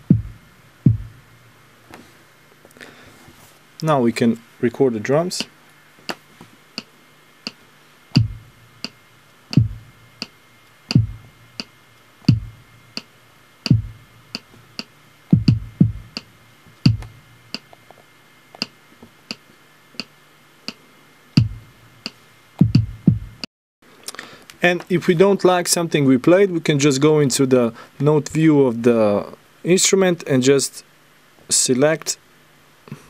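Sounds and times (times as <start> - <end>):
deep kick drum thumps: 0.0 - 1.2, 8.2 - 8.6, 9.5 - 10.0, 10.9 - 11.4, 12.3 - 12.7, 13.7 - 14.1, 15.3 - 16.2, 16.9 - 17.2, 21.4 - 21.7, 22.6 - 23.5.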